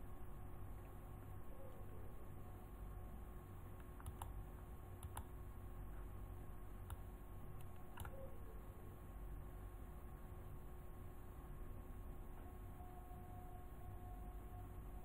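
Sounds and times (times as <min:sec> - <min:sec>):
low room hum: 0:00.0 - 0:15.0
computer mouse clicks: 0:03.8 - 0:04.4, 0:05.0 - 0:05.4, 0:06.8 - 0:07.0, 0:07.6 - 0:08.2.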